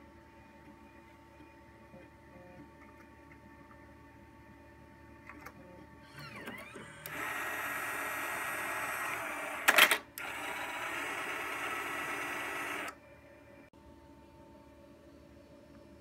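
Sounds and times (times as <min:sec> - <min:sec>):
disk changer motor whirring: 0:06.1 - 0:13.0.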